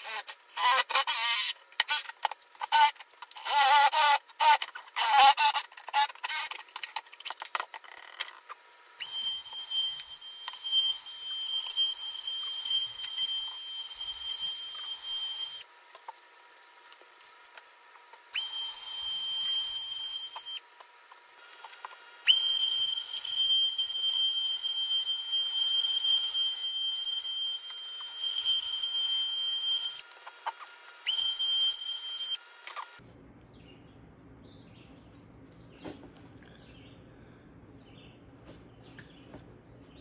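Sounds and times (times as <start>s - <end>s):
trim router whining: 9.0s - 15.7s, 18.4s - 20.6s, 21.4s - 33.0s
low quiet hum: 29.4s - 40.0s.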